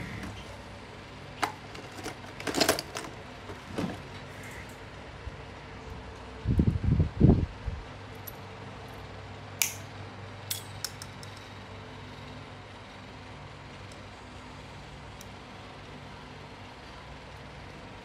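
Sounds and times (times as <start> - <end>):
steady low hum: 0.0 - 18.0
sharp metallic click: 9.6 - 9.9.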